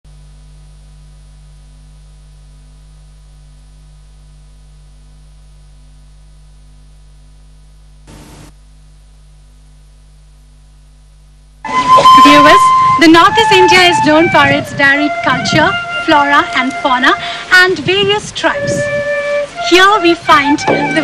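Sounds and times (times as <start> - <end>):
burst of static: 0.1 - 15.4
electrical hum and hiss: 0.1 - 21.0.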